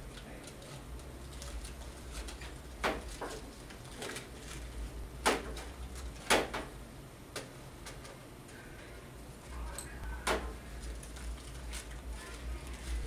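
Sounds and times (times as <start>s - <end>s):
aluminium foil crinkling: 0.0s - 6.3s, 10.5s - 13.0s
low steady hum: 0.0s - 13.0s.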